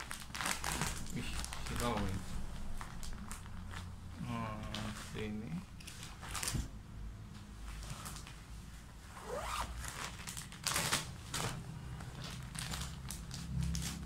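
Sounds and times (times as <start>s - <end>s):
plastic packaging rustling: 0.0s - 3.9s, 4.5s - 6.7s, 9.3s - 14.0s
fabric mat rustling: 7.6s - 14.0s.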